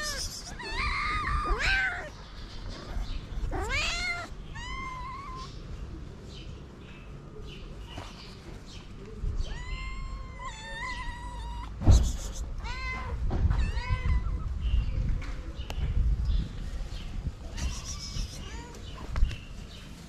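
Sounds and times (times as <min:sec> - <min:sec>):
cats meowing: 0:00.0 - 0:05.8, 0:09.4 - 0:11.8, 0:12.5 - 0:14.6, 0:17.5 - 0:19.2.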